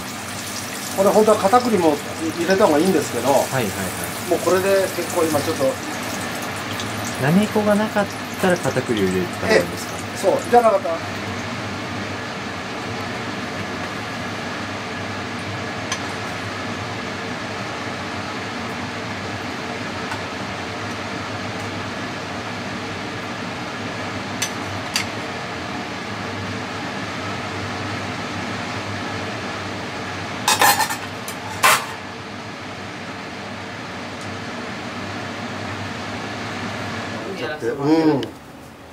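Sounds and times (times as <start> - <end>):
kitchen background hum: 0.0 - 38.9
utensils clinking on cookware: 30.5 - 32.0.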